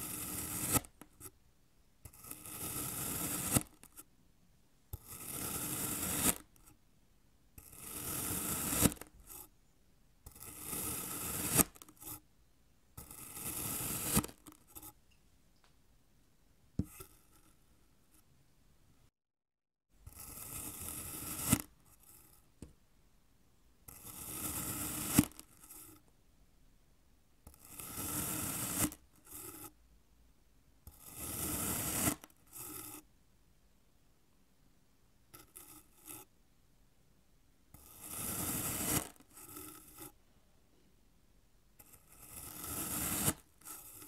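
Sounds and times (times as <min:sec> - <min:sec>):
knife scraping through packed sand: 0:00.0 - 0:00.9, 0:02.1 - 0:04.0, 0:05.0 - 0:06.4, 0:07.6 - 0:09.5, 0:10.3 - 0:12.2, 0:13.0 - 0:15.0, 0:23.9 - 0:25.9, 0:30.9 - 0:33.0, 0:37.8 - 0:40.2, 0:41.8 - 0:44.0.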